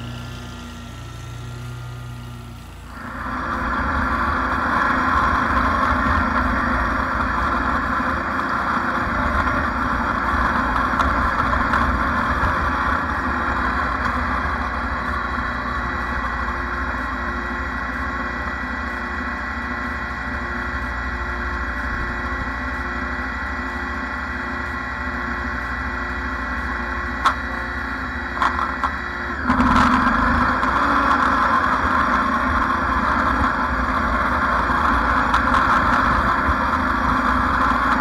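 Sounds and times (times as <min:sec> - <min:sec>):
low hum: 0:00.0 - 0:38.0
small petrol engine running: 0:00.0 - 0:38.0.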